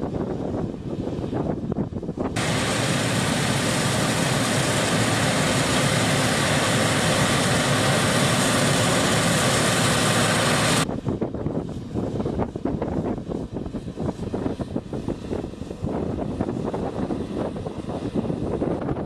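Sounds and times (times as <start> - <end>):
farm machinery engine running: 2.4 - 10.8.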